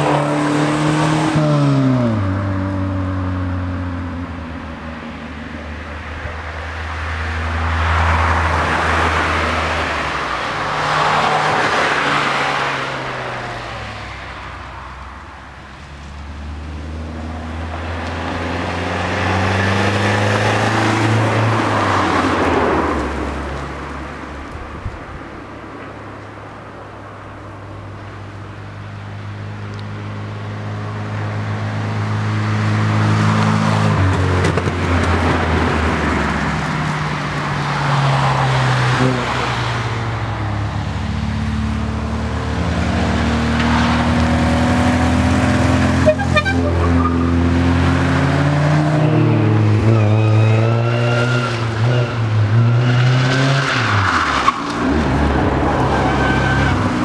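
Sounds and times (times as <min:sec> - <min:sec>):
cars revving up a hill: 0:00.0 - 0:57.0.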